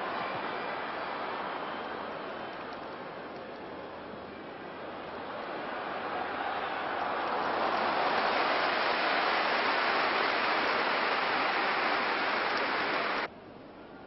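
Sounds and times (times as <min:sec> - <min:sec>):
stadium crowd cheering: 0:00.0 - 0:13.3
faint hiss: 0:07.9 - 0:13.3.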